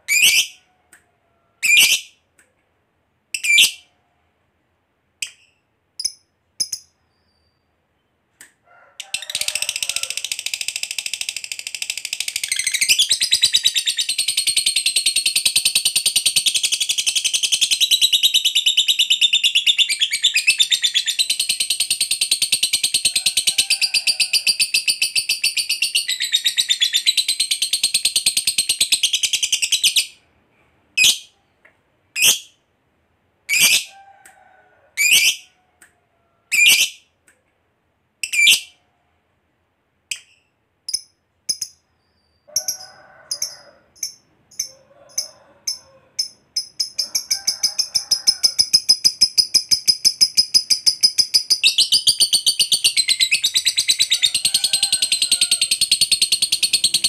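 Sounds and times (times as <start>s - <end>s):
lovebird chattering trill: 42.6s - 54.5s.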